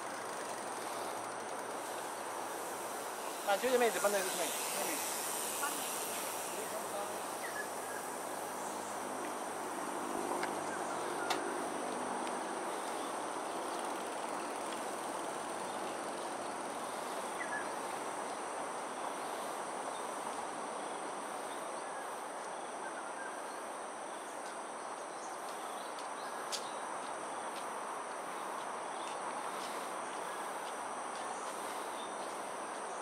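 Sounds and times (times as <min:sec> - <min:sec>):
background noise: 0:00.0 - 0:33.0
insects shrilling: 0:00.2 - 0:09.8.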